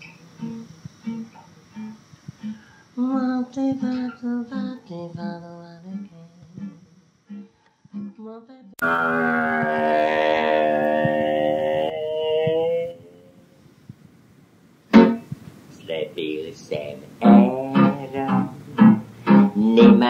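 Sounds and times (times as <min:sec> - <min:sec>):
acoustic guitar picking jazzy tune: 0:00.0 - 0:02.7, 0:08.8 - 0:13.2, 0:14.9 - 0:20.0
melody line: 0:08.8 - 0:11.9
loud held note: 0:08.8 - 0:13.2, 0:15.0 - 0:15.3.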